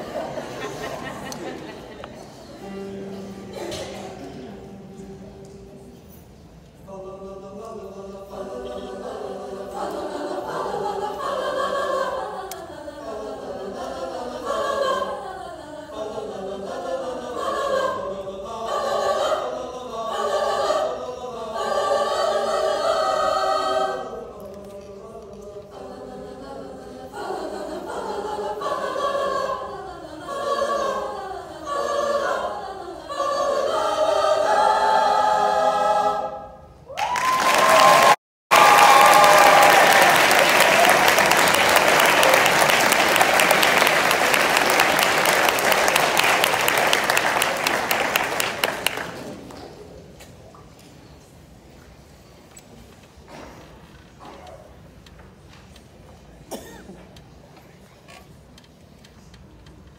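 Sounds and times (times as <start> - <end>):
choir singing held chords: 0.0 - 6.2, 6.8 - 36.9.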